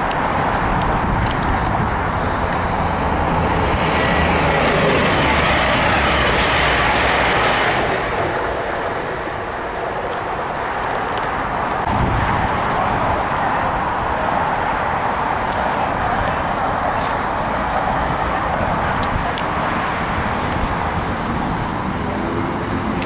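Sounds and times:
electric train approaching: 0.0 - 15.8
train passing at speed: 0.0 - 23.0.

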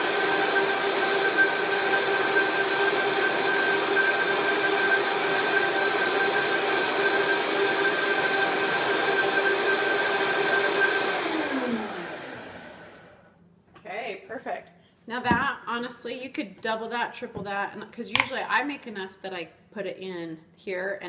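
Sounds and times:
blender motor whining: 0.0 - 13.3.

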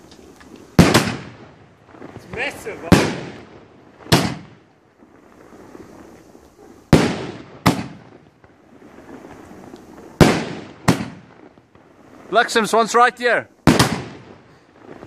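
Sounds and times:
firework shells bursting: 0.0 - 15.0.

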